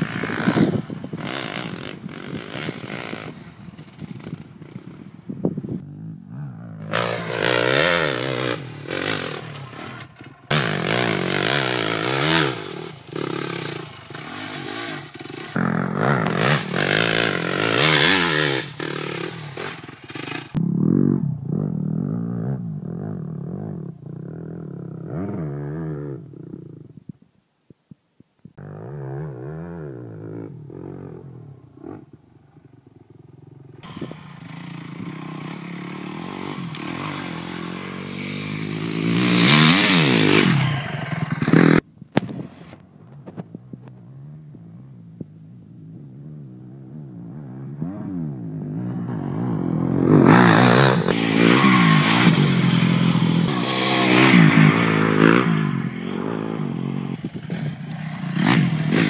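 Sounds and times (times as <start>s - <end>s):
dirt bike engine revving: 0.0s - 26.7s, 28.6s - 41.9s, 46.0s - 59.0s.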